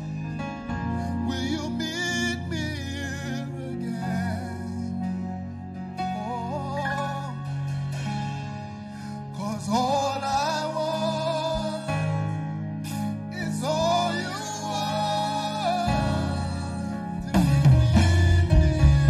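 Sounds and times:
person singing: 0:00.0 - 0:05.3, 0:06.0 - 0:08.0, 0:09.0 - 0:19.0
keyboard chords: 0:00.0 - 0:19.0
drums: 0:07.7 - 0:09.8, 0:15.9 - 0:19.0
deep bass note: 0:15.6 - 0:19.0.

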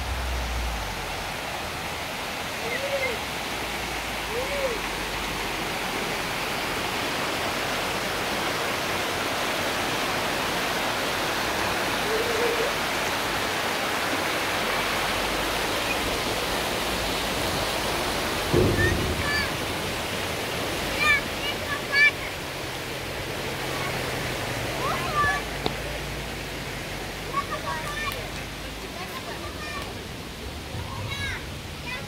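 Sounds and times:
stream rushing over stones: 0:00.0 - 0:32.0
low thump: 0:18.5 - 0:21.4.

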